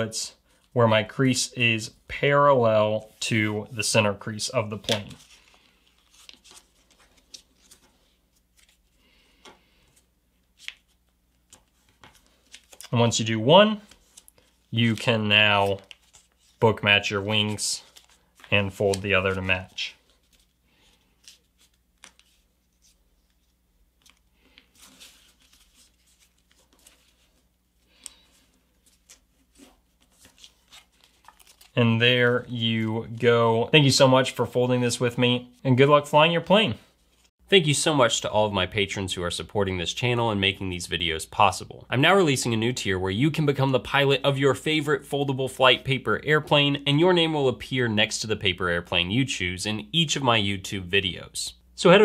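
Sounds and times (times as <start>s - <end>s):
paper rustling and clicking: 4.7s - 8.8s, 10.6s - 13.1s, 21.2s - 31.8s.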